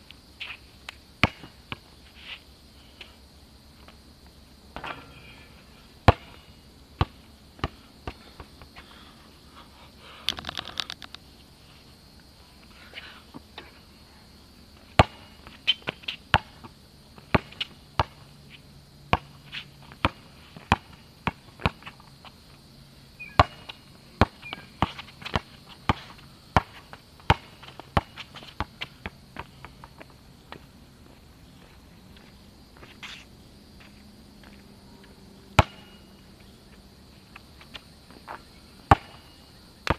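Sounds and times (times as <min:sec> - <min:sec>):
basketball bouncing on asphalt: 0:00.9 - 0:02.0, 0:04.7 - 0:08.8, 0:14.8 - 0:18.4, 0:19.1 - 0:22.0, 0:23.2 - 0:32.9, 0:33.9 - 0:39.9.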